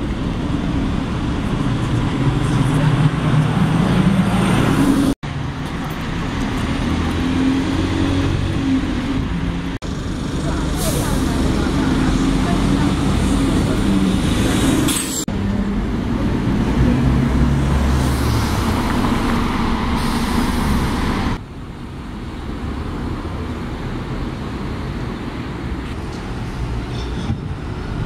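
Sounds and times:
bus pulling away: 0.0s - 21.4s
passing traffic: 0.0s - 28.0s.

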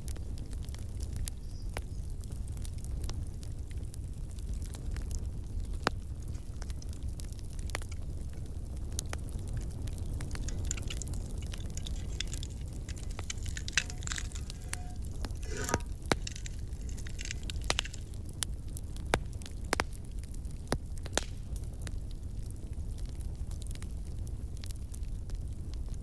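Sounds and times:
wood fire crackling: 0.0s - 26.0s
scraping rustle: 10.4s - 18.2s.

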